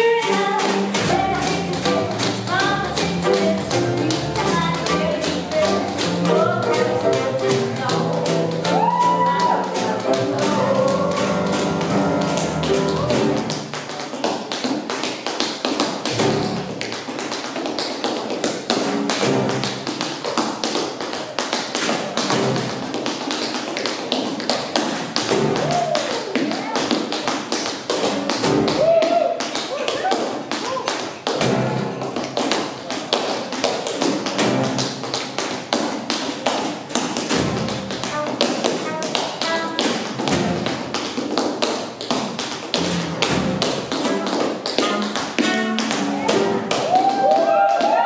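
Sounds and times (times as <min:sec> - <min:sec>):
swing jazz band: 0:00.0 - 0:13.6, 0:42.8 - 0:46.7
tap shoes on wooden floor: 0:00.0 - 0:48.0.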